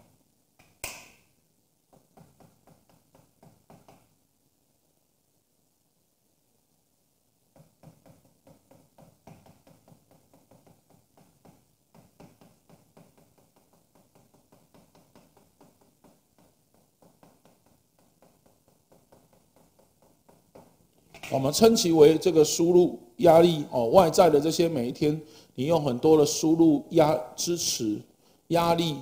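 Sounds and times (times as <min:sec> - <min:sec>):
chalk writing on a blackboard: 0:07.6 - 0:20.7.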